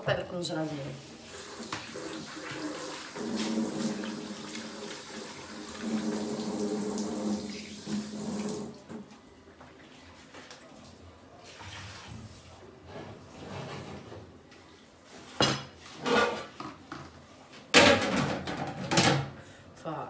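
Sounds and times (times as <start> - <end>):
tap water running into sink: 1.3 - 9.1.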